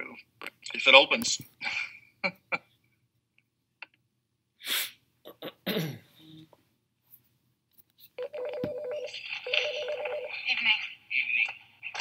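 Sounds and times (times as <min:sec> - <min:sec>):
video audio from computer: 0:00.0 - 0:03.0, 0:03.6 - 0:12.0
person sneezing: 0:04.6 - 0:06.1.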